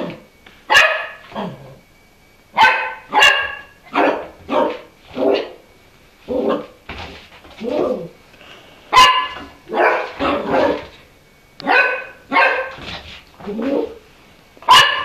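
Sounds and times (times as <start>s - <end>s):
puppy barking: 0.7s - 1.6s, 2.6s - 5.6s, 6.3s - 6.8s, 8.9s - 11.0s, 11.6s - 12.9s, 14.6s - 15.0s.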